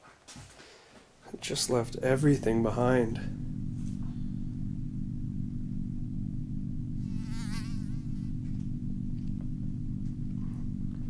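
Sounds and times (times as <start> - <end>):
low buzzing hum: 1.2 - 11.0.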